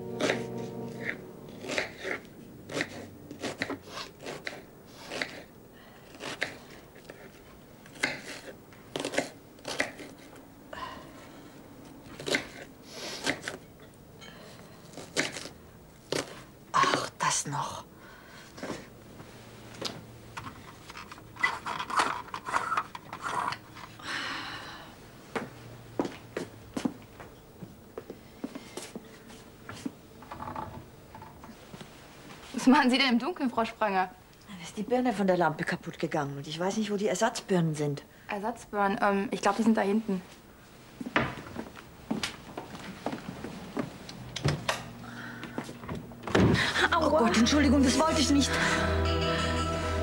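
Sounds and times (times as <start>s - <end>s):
knife cutting on cutting board: 1.6s - 5.5s
rustling and scraping of objects: 18.4s - 24.0s.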